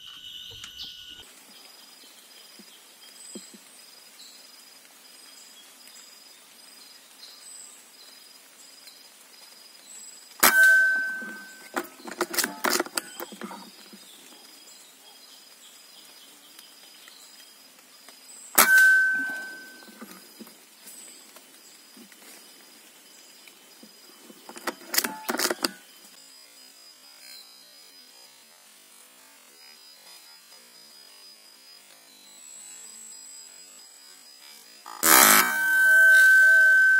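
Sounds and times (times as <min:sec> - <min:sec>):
faint high chirps: 0:00.0 - 0:04.4, 0:18.6 - 0:21.1, 0:35.2 - 0:36.9
rattling clicks: 0:10.4 - 0:13.7, 0:24.5 - 0:25.8
air rifle shots: 0:18.6 - 0:20.1.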